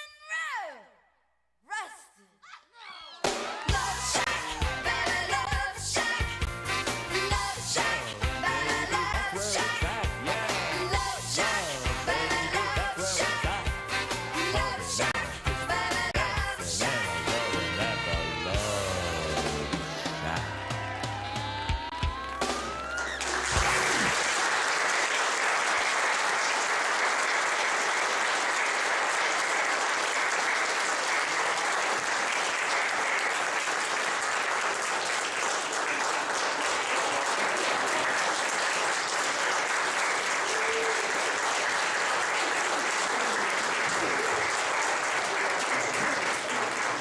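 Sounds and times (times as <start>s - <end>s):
congregation applauding: 6.2s - 15.3s, 19.0s - 47.0s.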